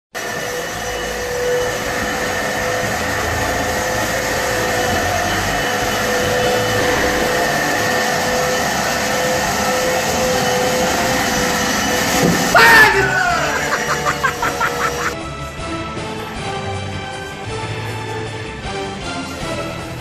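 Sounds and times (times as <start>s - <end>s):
vacuum cleaner running: 0.2s - 15.2s.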